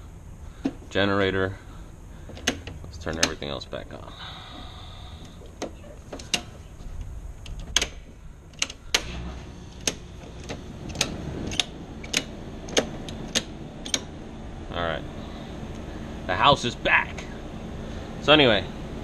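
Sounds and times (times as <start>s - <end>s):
circuit breakers clicking: 2.2s - 3.7s, 5.2s - 14.4s.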